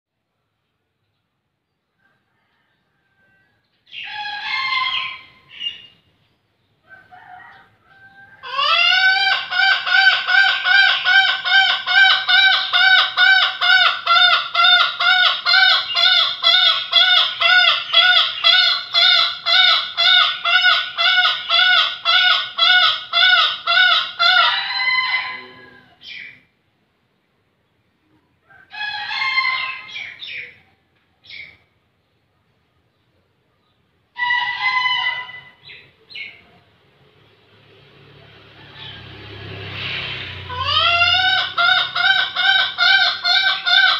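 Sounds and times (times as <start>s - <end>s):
rooster crowing: 2.0s - 5.4s, 6.8s - 13.6s, 24.0s - 26.1s, 28.4s - 30.2s, 38.2s - 43.9s.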